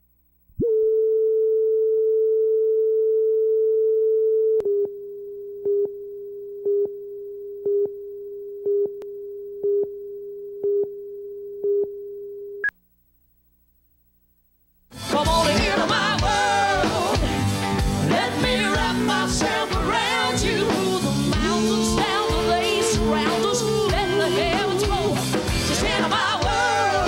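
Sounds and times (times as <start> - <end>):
steady test tone: 0.6 - 12.7.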